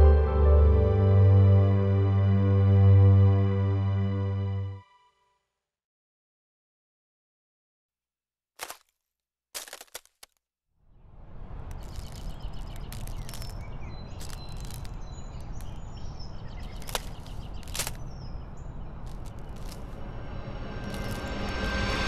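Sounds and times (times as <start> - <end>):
ice cracking: 9.6 - 10.3, 11.6 - 20.1, 20.8 - 22.0
steady rushing noise: 19.4 - 22.0.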